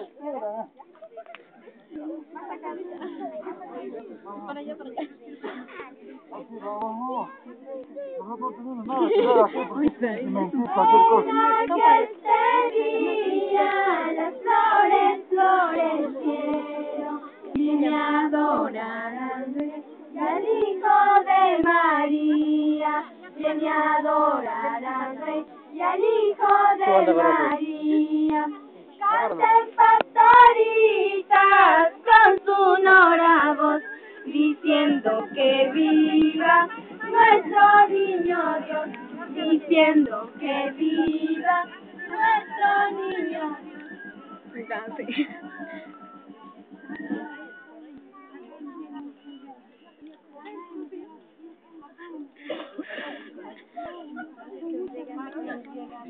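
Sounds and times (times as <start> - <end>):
children and women singing: 8.9 - 45.9.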